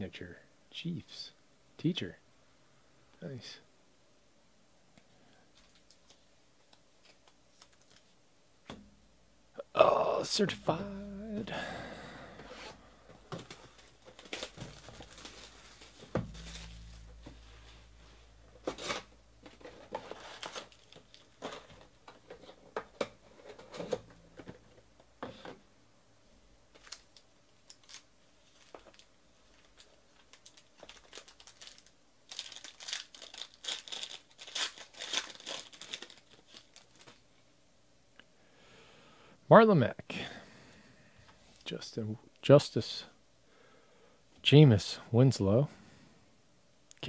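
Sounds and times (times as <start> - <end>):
plastic and foil crinkling: 5.5 - 8.2, 12.6 - 22.8, 26.7 - 37.4.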